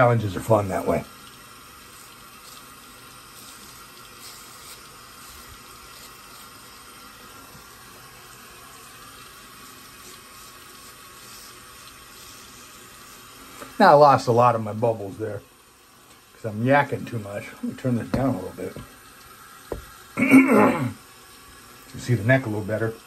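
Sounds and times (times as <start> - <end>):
running tap hissing: 0.0 - 23.0
razor scraping through lather: 0.7 - 13.8.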